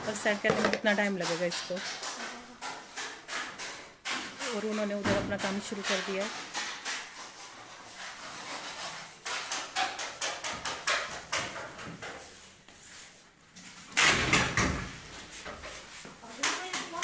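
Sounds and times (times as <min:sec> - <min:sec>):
household objects knocking and clicking: 0:00.0 - 0:07.6, 0:08.4 - 0:12.3, 0:13.9 - 0:17.0
objects clattering: 0:00.0 - 0:12.5.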